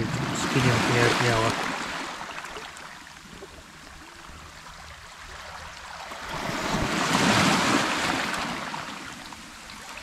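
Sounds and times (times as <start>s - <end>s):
small waves washing over pebbles: 0.0s - 3.5s, 5.2s - 10.0s.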